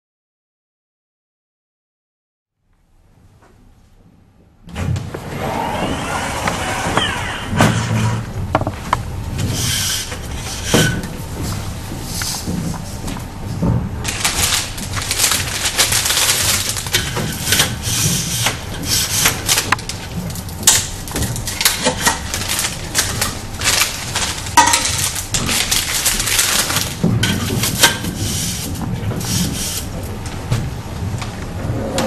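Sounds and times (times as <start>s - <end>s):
plastic sleeve crinkling: 14.0s - 18.0s, 19.0s - 29.9s
cups clattering: 24.6s - 28.1s.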